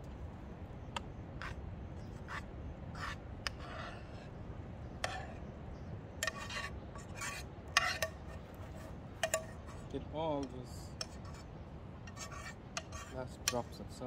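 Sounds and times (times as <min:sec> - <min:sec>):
low steady background rumble: 0:00.0 - 0:14.0
fork scraping a frying pan: 0:03.0 - 0:04.3, 0:05.0 - 0:05.4, 0:06.2 - 0:09.9, 0:10.9 - 0:11.5, 0:12.1 - 0:13.8.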